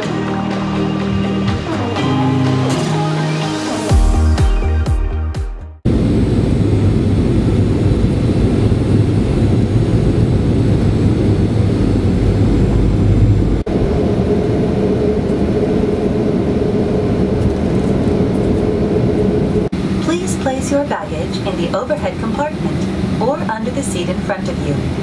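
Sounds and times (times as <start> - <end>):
jet airliner rumble: 5.8 - 25.0.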